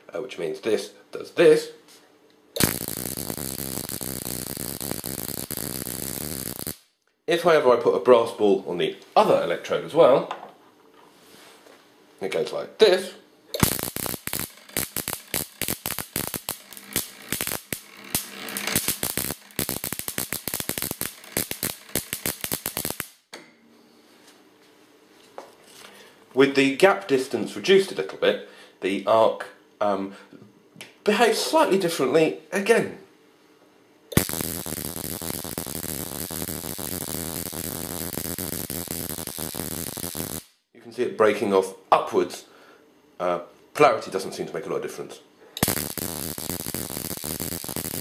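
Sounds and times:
induction coil sparking: 0:02.6 - 0:06.9, 0:13.5 - 0:23.3, 0:34.1 - 0:40.6, 0:45.6 - 0:48.0.

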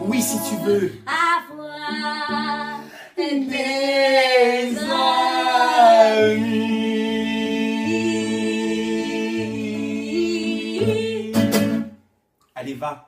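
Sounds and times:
man and woman singing: 0:00.0 - 0:11.8
nylon-string guitar: 0:01.8 - 0:03.0, 0:04.7 - 0:12.0.

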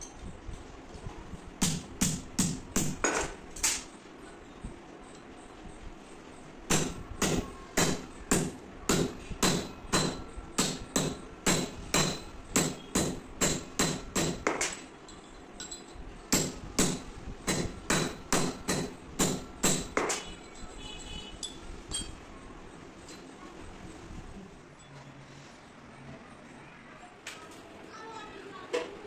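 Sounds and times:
hammer striking steel: 0:01.6 - 0:03.8, 0:06.7 - 0:14.9, 0:15.6 - 0:20.4.

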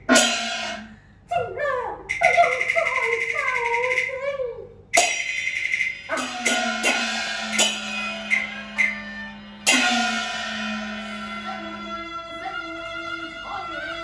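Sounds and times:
gong and cymbal beats: 0:00.0 - 0:01.0, 0:04.9 - 0:14.0
low held tone: 0:05.0 - 0:13.4.

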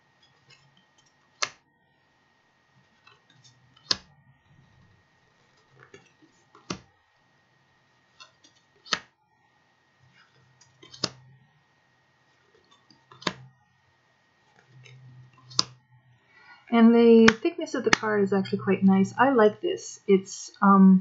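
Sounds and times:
cards sliding rustles: 0:08.2 - 0:09.1, 0:10.1 - 0:11.2, 0:12.5 - 0:13.5, 0:14.5 - 0:15.8.

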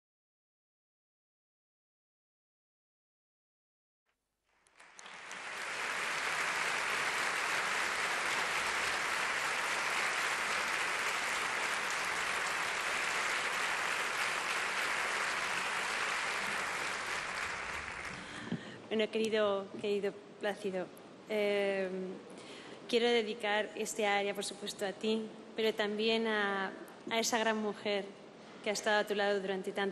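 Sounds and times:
audience applauding: 0:04.6 - 0:18.6.

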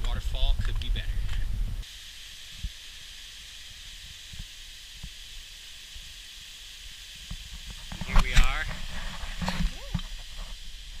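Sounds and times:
waterfall hissing into pool: 0:01.8 - 0:11.0.

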